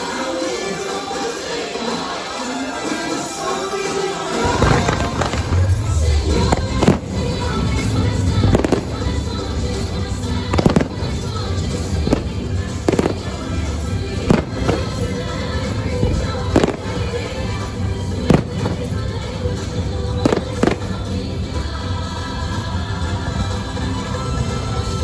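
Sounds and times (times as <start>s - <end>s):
fireworks show music: 0.0s - 25.0s
fireworks bursting bangs: 4.2s - 21.8s.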